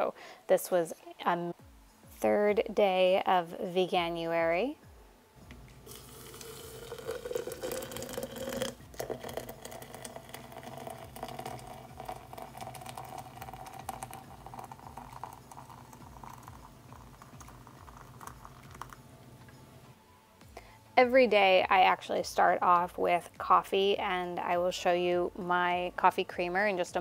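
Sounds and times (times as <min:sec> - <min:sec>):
hot water pouring into a glass: 0:05.8 - 0:19.1.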